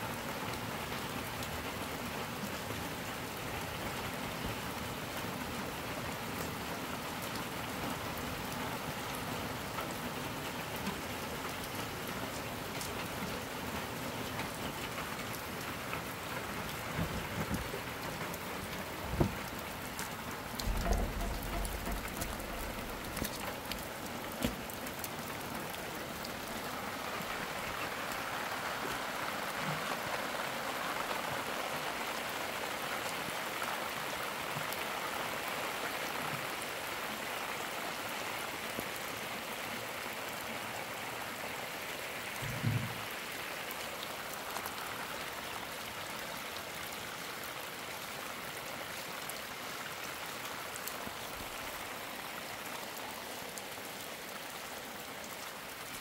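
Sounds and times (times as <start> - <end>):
steady rain: 0.0 - 56.0
water running down a dirt channel: 0.0 - 56.0
dull thump: 19.0 - 19.4, 20.6 - 23.4, 42.4 - 43.0.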